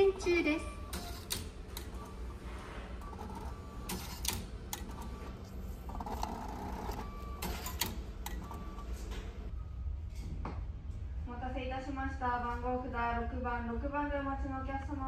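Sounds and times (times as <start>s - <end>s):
ticket printer whirring: 0.0s - 9.5s.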